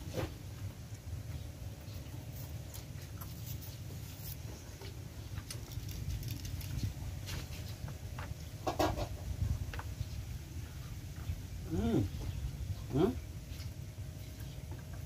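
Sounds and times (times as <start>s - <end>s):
wind rumble on microphone: 5.7s - 14.2s.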